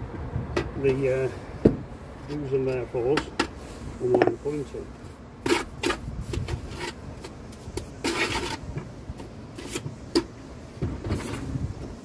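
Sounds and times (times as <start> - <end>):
wind buffeting microphone: 0.0 - 0.9, 10.8 - 12.0
short scrape: 5.4 - 8.7.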